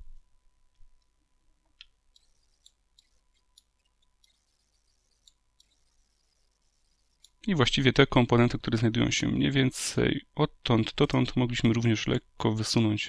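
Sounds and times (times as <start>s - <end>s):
computer mouse and keyboard clicks: 2.1s - 7.4s.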